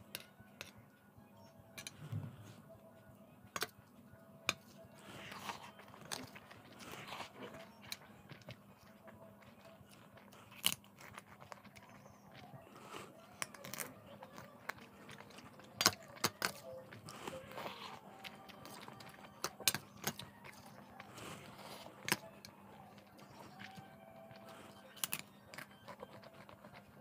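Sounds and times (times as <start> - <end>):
quiet chewing: 4.5 - 27.0
crunching crisp snack: 9.4 - 27.0.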